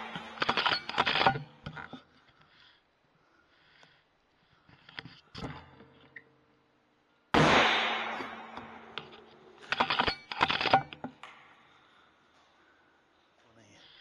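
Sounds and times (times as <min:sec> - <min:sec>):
air rifle shot: 0:07.4 - 0:09.2.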